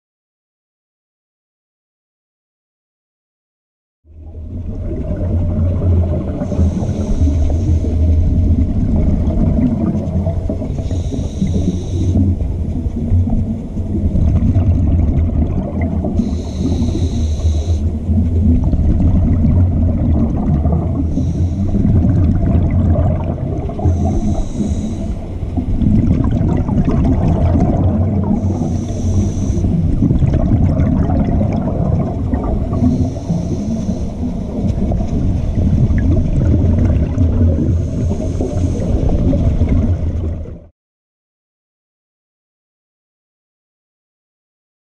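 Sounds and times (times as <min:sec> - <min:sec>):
underwater bubbling rumble: 0:04.0 - 0:40.7
regulator hiss on inhale: 0:06.4 - 0:08.2, 0:10.7 - 0:12.4, 0:16.2 - 0:18.1, 0:21.0 - 0:21.9, 0:23.8 - 0:25.4, 0:28.4 - 0:29.9, 0:32.7 - 0:34.6, 0:37.7 - 0:39.1.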